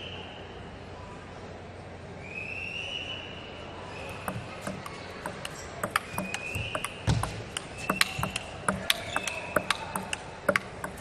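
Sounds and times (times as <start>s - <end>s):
table tennis ball clicking: 4.1s - 11.0s.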